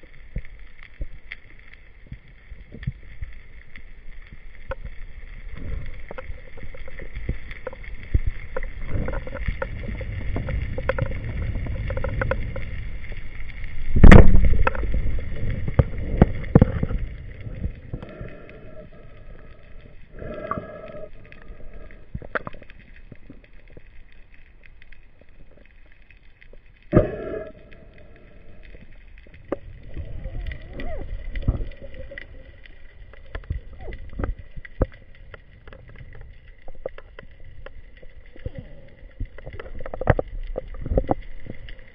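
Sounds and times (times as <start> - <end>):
underwater water rushing: 0.0 - 41.9.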